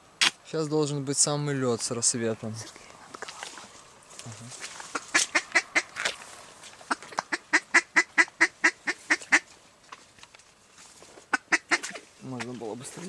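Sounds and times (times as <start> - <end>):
duck call quacks: 4.9 - 6.0, 6.9 - 9.5, 11.3 - 12.0.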